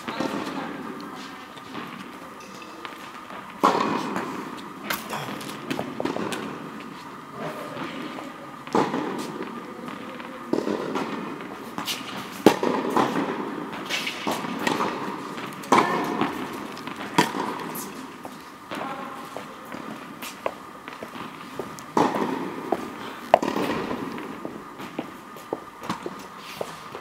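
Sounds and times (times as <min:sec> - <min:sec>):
tennis ball bouncing: 0:02.9 - 0:06.7, 0:08.6 - 0:18.4, 0:19.4 - 0:26.3
tennis racket hitting ball: 0:03.6 - 0:06.7, 0:08.7 - 0:18.9, 0:19.7 - 0:25.2
footsteps: 0:13.8 - 0:27.0.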